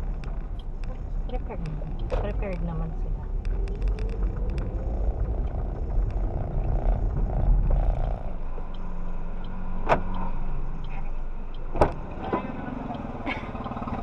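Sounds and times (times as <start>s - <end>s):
car engine and road rumble: 0.0s - 14.0s
car engine idling: 0.0s - 14.0s
sharp clicks: 0.1s - 10.9s.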